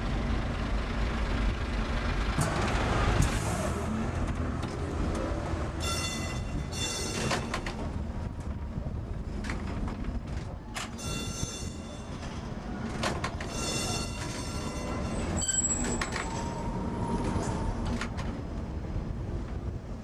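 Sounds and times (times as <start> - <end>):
tram rumbling: 0.0 - 20.0
steel wheels squealing: 5.8 - 7.9, 10.9 - 17.8.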